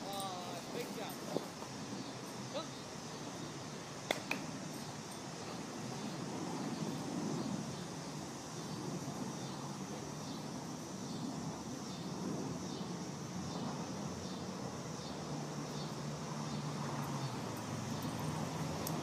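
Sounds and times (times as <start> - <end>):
distant traffic rumble: 0.0 - 19.0.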